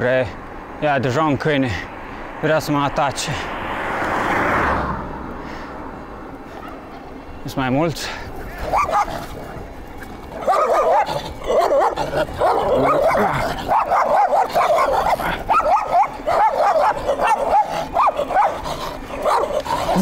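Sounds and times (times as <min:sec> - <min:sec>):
dogs barking aggressively: 0:06.4 - 0:07.2, 0:08.2 - 0:20.0.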